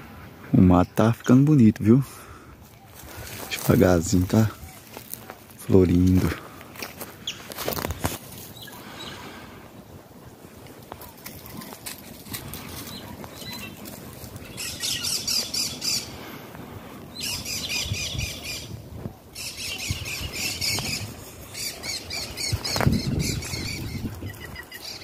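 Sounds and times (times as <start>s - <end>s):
footsteps on dry leaves: 2.6s - 16.3s, 19.8s - 25.0s
bird harsh chattering: 14.4s - 16.2s, 17.2s - 18.8s, 19.4s - 25.0s.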